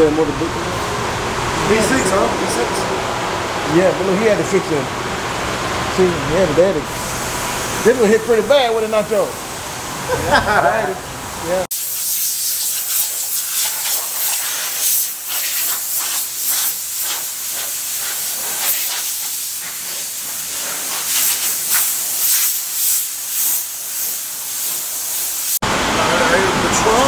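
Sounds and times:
hose nozzle spray hissing: 11.7s - 25.6s.

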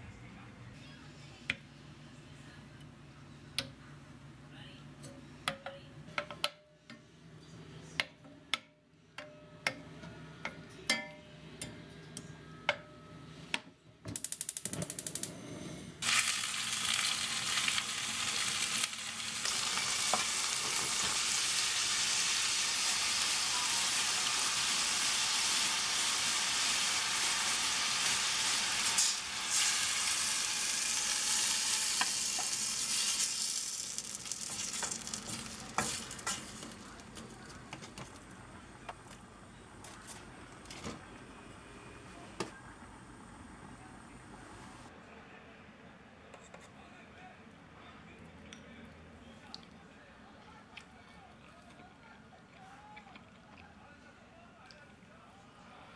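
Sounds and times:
food sizzling in a pot: 16.0s - 38.1s.

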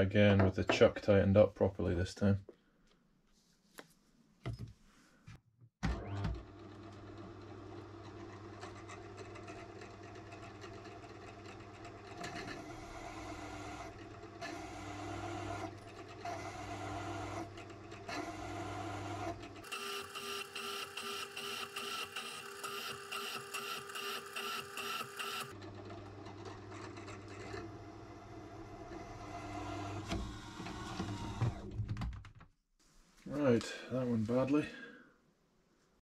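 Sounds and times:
drill press motor running: 5.8s - 31.7s.

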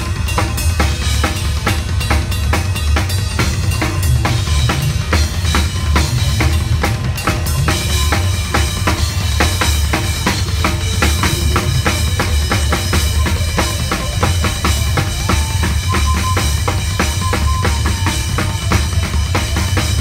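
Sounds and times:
low bass: 0.0s - 20.0s
rock drum kit playing fast: 0.0s - 20.0s
held instrument note: 7.7s - 20.0s.

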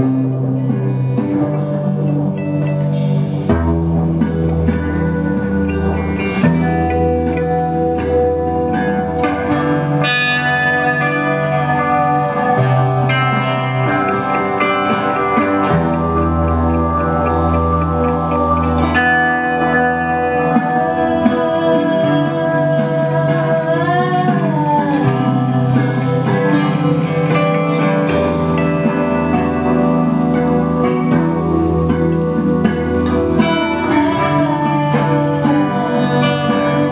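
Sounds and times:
band playing guitar-led music: 0.0s - 36.9s
sustained bass notes: 0.0s - 36.9s.

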